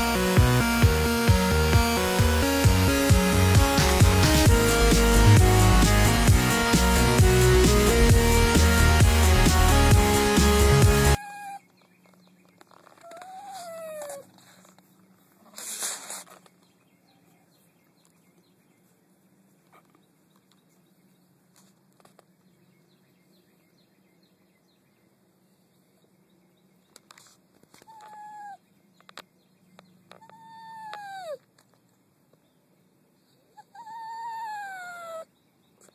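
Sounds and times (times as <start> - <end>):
small dog whimpering: 11.2 - 11.7, 13.0 - 14.5, 27.8 - 28.6, 30.1 - 31.4, 33.6 - 35.3
noisy rustle: 14.0 - 16.8.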